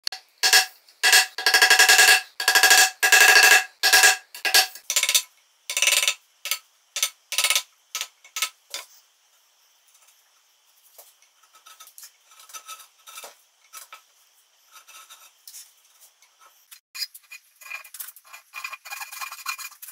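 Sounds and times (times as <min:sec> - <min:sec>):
chisel tapping and scraping: 0:00.0 - 0:08.9.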